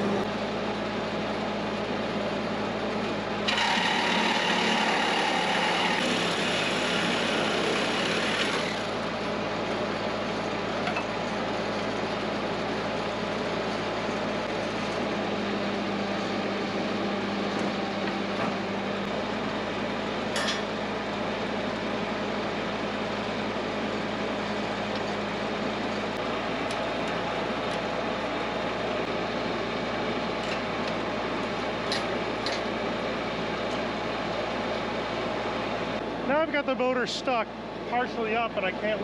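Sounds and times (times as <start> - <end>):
machine running with low hum: 0.0 - 39.0.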